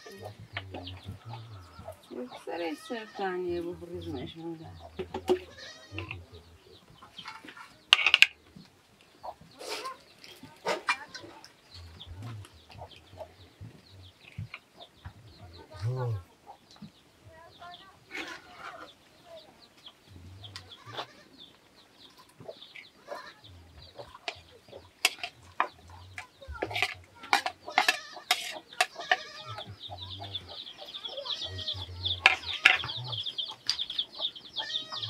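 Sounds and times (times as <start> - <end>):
high-pitched chatter: 0.0 - 6.6, 22.9 - 35.0
chickens clucking: 0.0 - 35.0.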